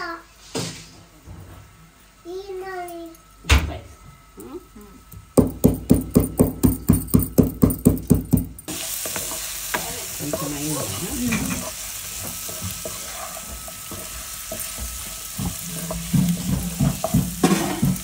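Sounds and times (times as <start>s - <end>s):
chicken sizzling in hot oil: 8.7s - 18.0s.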